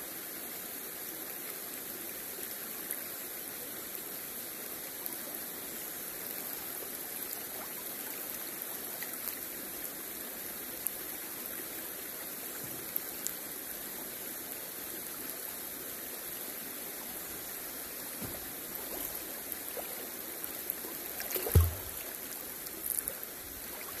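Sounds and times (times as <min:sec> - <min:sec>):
river water over stones: 0:00.1 - 0:24.0
water clicks and trickles: 0:05.0 - 0:09.9, 0:17.1 - 0:24.0
low thump: 0:18.2 - 0:18.6, 0:21.4 - 0:22.0.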